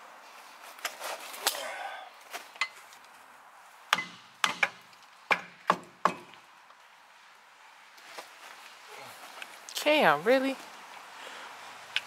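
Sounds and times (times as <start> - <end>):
hammer striking metal: 3.9 - 6.3.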